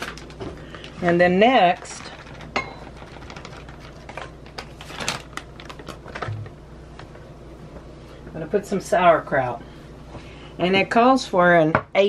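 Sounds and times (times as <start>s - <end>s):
hands handling plastic package: 0.0s - 1.1s, 1.7s - 6.6s.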